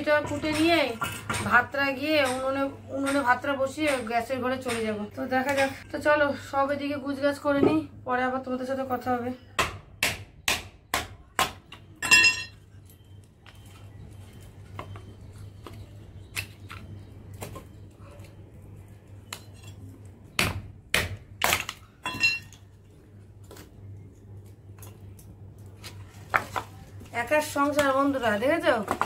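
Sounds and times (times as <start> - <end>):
low steady hum: 1.7 - 29.0.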